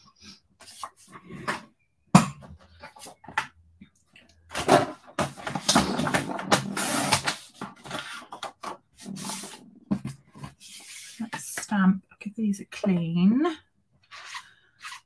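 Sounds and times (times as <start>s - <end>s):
craft supplies rustling and scraping: 4.5s - 11.7s.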